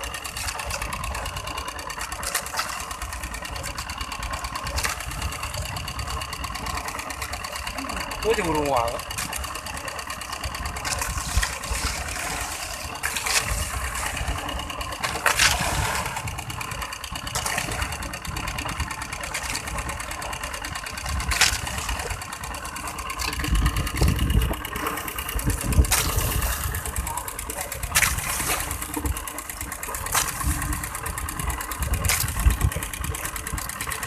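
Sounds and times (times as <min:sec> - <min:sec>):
rushes of water: 0:00.0 - 0:08.4, 0:09.0 - 0:34.0
boat engine puttering: 0:00.0 - 0:34.0
wind buffeting microphone: 0:23.4 - 0:29.2, 0:30.1 - 0:33.8.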